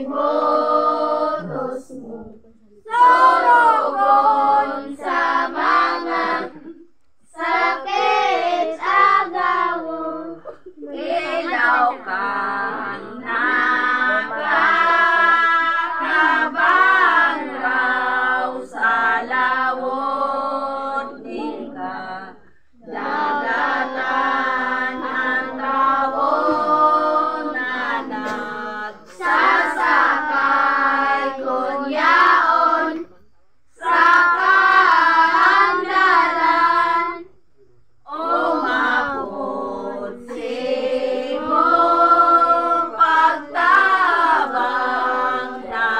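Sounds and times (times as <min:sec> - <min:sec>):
children and women singing hymn: 0:00.0 - 0:37.5, 0:38.1 - 0:45.9.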